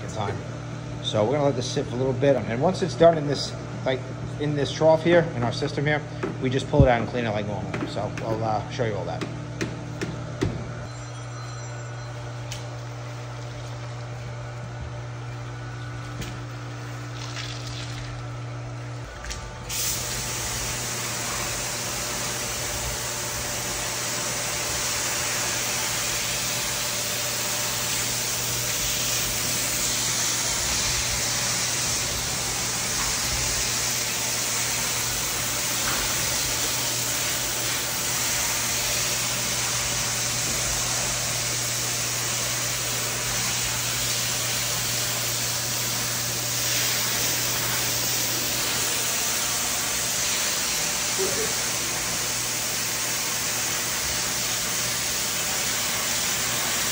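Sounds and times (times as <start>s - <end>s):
machine hum: 0.0s - 56.9s
water spraying hiss: 19.7s - 56.9s.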